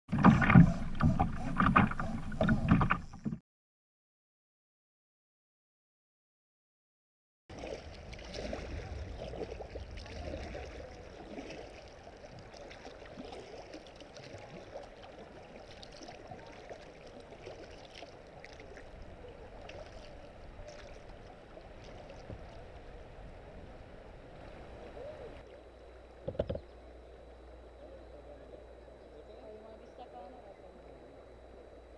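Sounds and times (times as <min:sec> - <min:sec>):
low rumble of river: 0:00.1 - 0:03.4, 0:07.5 - 0:31.9
paddle strokes splashing water: 0:00.1 - 0:03.4, 0:07.5 - 0:26.5
drips and small splashes: 0:07.5 - 0:22.9.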